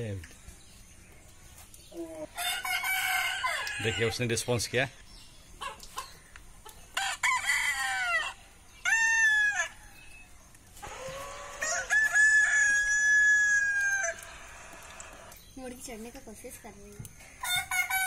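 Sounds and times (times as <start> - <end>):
rooster crowing: 2.4 - 4.2, 7.0 - 9.8, 10.8 - 15.3, 17.4 - 18.0.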